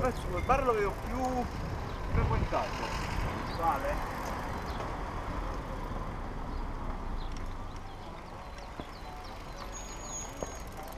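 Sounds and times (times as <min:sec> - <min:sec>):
wind buffeting: 0:00.0 - 0:06.4
bicycle tyre rumble: 0:00.0 - 0:10.9.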